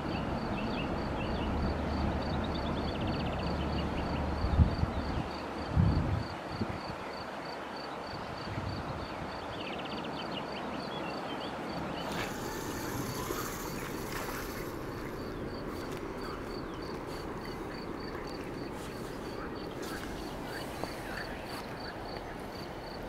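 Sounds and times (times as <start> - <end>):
wind: 0.0 - 23.0
water noise: 11.6 - 23.0
faint high-pitched ticking: 12.0 - 23.0.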